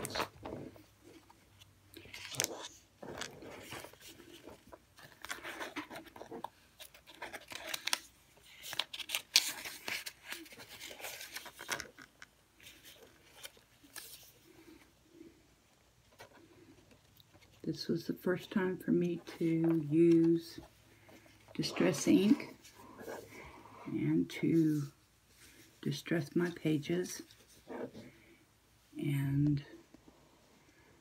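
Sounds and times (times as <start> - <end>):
paper pages rustling and scraping: 0.0 - 14.9, 18.3 - 23.6.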